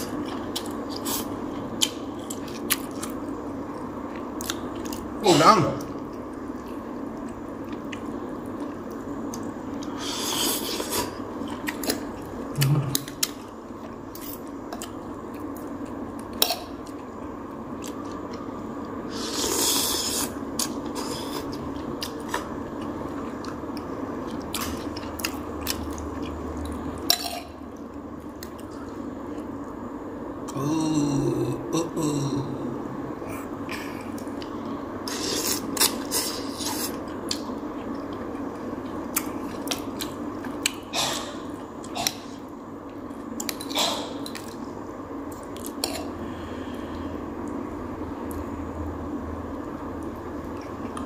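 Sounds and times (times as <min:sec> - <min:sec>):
person chewing with crunches: 0:00.0 - 0:05.2, 0:05.8 - 0:29.7, 0:33.2 - 0:47.6.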